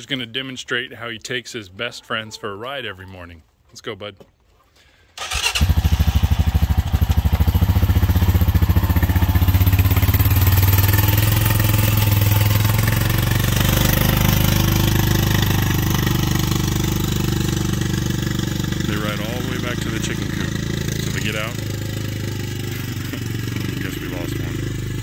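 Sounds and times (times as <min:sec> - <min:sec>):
quad bike engine running: 0:05.2 - 0:25.0.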